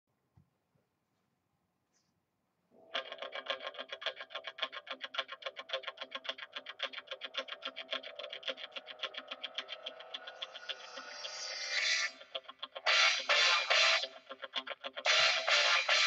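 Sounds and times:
plucked intro music: 0:07.6 - 0:14.1.

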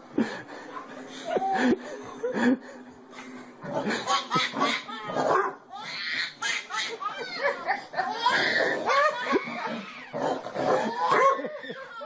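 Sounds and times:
baby laughing: 0:03.8 - 0:12.0
large dog barking: 0:10.2 - 0:11.5.

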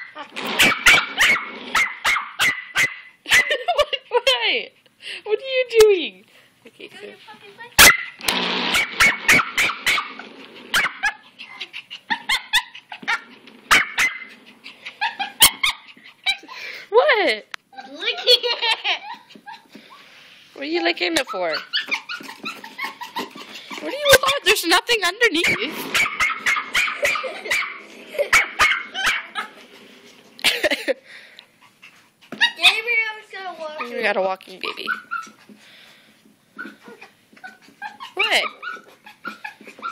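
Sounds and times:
puppy yipping barks: 0:00.0 - 0:03.6, 0:07.8 - 0:14.4, 0:15.2 - 0:16.4, 0:25.4 - 0:29.5, 0:34.8 - 0:35.4, 0:36.6 - 0:39.9.

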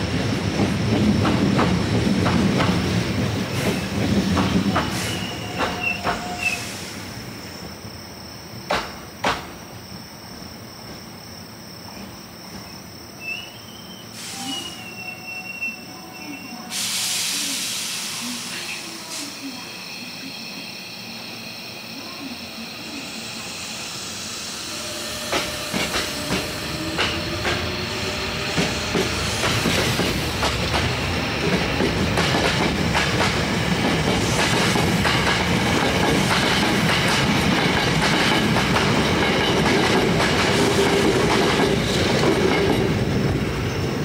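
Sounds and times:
train rumbling past: 0:00.0 - 0:44.0
electric train motor whine: 0:24.5 - 0:29.6.

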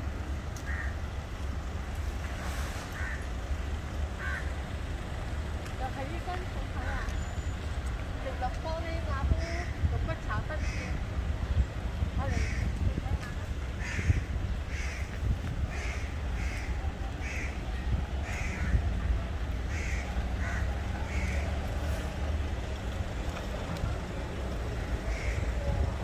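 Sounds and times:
crow cawing: 0:00.6 - 0:01.0, 0:03.0 - 0:03.3, 0:04.2 - 0:04.6, 0:10.6 - 0:11.0, 0:12.3 - 0:12.7, 0:13.8 - 0:15.1, 0:15.7 - 0:17.6, 0:18.2 - 0:18.8, 0:19.7 - 0:21.4, 0:24.8 - 0:25.5.

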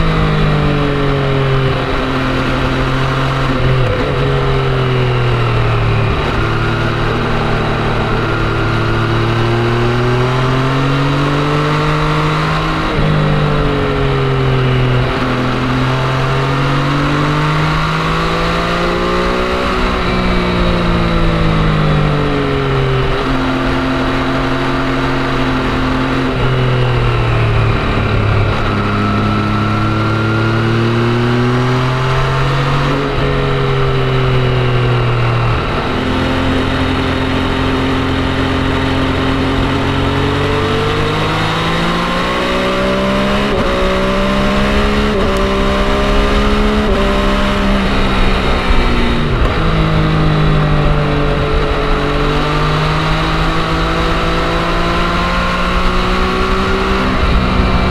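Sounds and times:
motorcycle engine shifting gears: 0:00.0 - 0:57.9
wind and road noise: 0:00.0 - 0:57.9.

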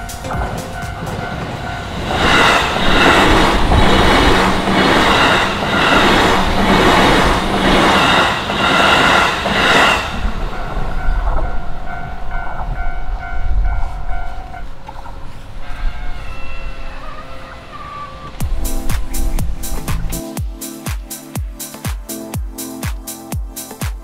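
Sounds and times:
train wheels clacking over rail joints: 0:00.0 - 0:12.9
level crossing warning bell: 0:00.0 - 0:14.9.

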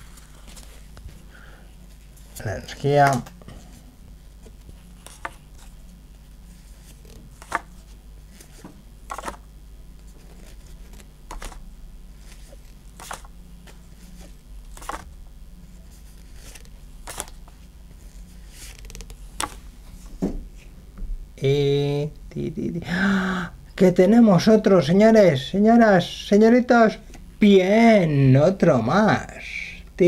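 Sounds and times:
low steady hum: 0:00.0 - 0:30.0
trading card snapping: 0:17.0 - 0:17.4.

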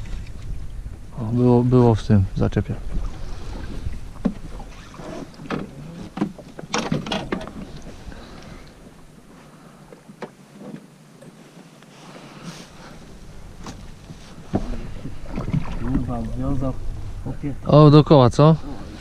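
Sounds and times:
low wind rumble: 0:00.0 - 0:09.8, 0:12.7 - 0:19.0
fishing gear clattering: 0:05.5 - 0:07.9.

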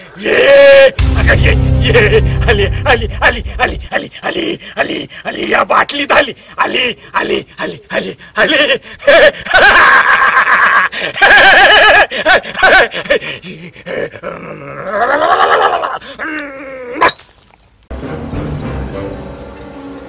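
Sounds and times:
person screaming and wailing: 0:00.1 - 0:05.5, 0:06.6 - 0:13.2, 0:13.9 - 0:17.1.

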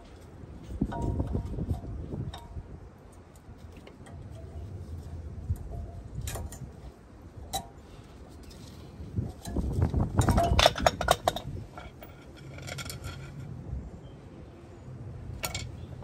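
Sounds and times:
metal tools clinking: 0:09.3 - 0:13.5, 0:15.4 - 0:16.0.

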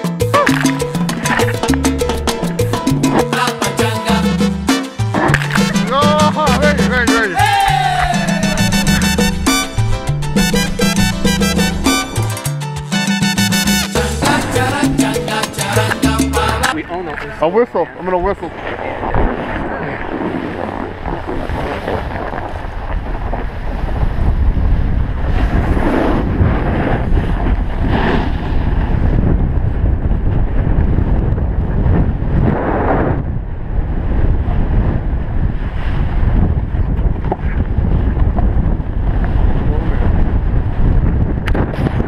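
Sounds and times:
wind rushing over microphone: 0:16.7 - 0:42.0
snowboard edge scraping snow: 0:18.5 - 0:29.2.

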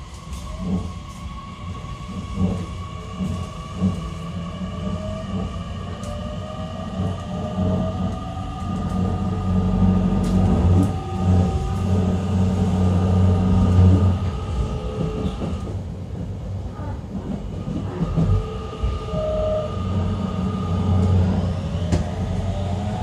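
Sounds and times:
train motor hum: 0:00.0 - 0:15.9, 0:17.2 - 0:23.0
wheels rumbling on rail: 0:00.0 - 0:23.0.

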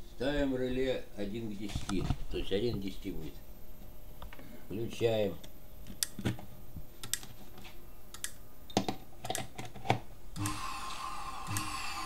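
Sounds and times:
motor whining: 0:10.4 - 0:12.0.

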